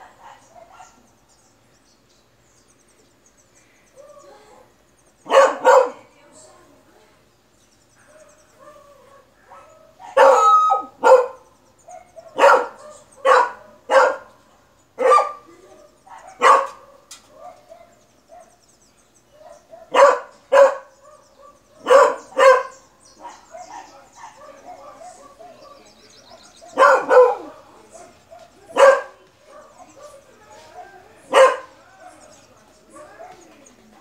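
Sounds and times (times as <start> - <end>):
dog barking: 0.0 - 1.0, 5.3 - 6.1, 8.0 - 14.4, 15.0 - 15.5, 16.1 - 18.6, 19.3 - 32.3, 32.9 - 33.5.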